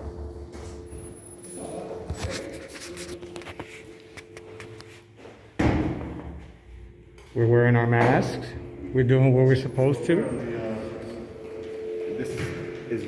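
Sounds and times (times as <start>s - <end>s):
loud thump: 5.6s - 6.4s.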